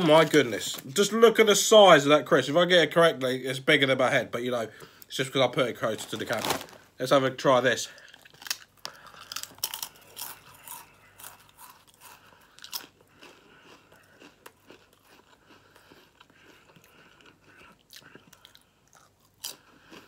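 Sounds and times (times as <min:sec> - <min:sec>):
person crunching a crisp: 0:05.9 - 0:06.9, 0:08.0 - 0:20.0.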